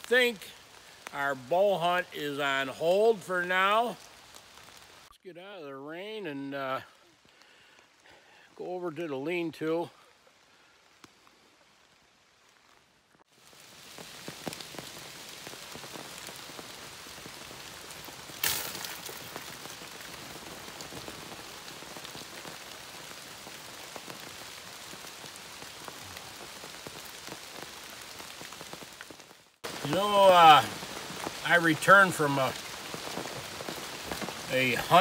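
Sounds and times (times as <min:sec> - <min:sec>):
rain pattering on a tarp: 0:00.0 - 0:35.0
water splash: 0:18.4 - 0:19.8.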